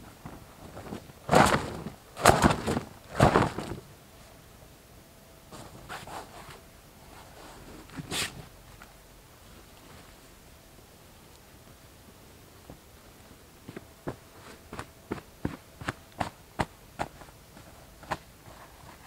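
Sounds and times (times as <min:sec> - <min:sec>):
blanket flapping: 0:00.2 - 0:03.9
cloth rustling: 0:00.3 - 0:03.9.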